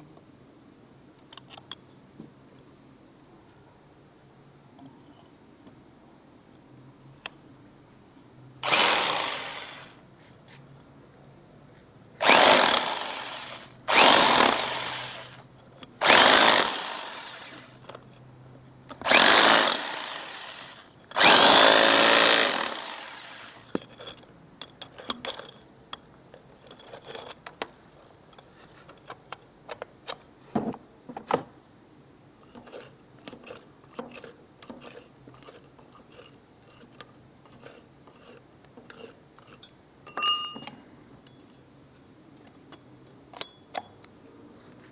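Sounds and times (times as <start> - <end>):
hammer drill boring through wall: 8.6 - 10.0, 12.2 - 15.4, 16.0 - 17.8, 19.0 - 24.0.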